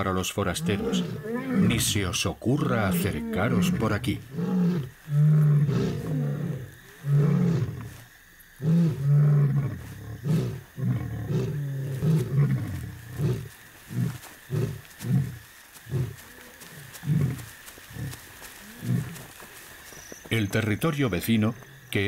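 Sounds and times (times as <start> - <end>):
lion roaring: 0.4 - 2.0, 2.6 - 8.0, 8.6 - 19.2
lion grunts: 0.5 - 2.0, 2.6 - 7.9.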